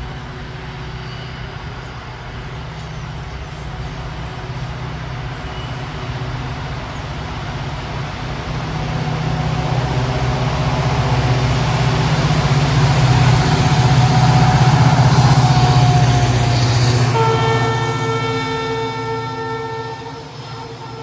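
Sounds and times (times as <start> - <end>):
diesel locomotive engine throbbing: 0.0 - 21.0
locomotive horn blast: 12.5 - 21.0.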